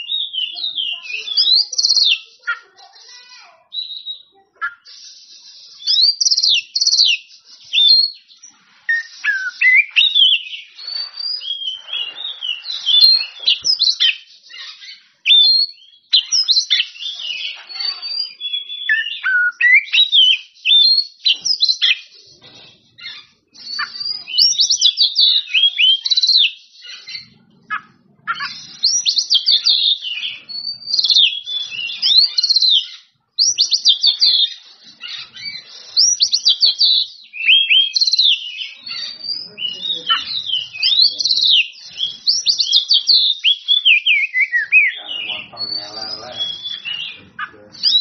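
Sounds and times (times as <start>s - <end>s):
bird singing whistled song: 0.0s - 2.6s, 3.7s - 48.0s.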